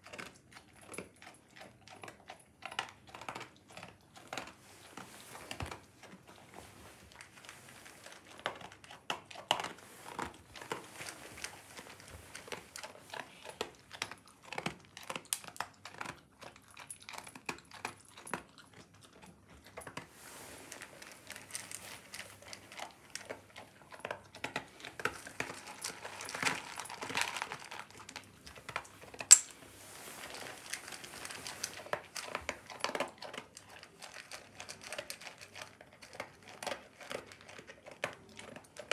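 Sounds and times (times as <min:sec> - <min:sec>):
dog crunching dry kibble: 0:00.0 - 0:38.9.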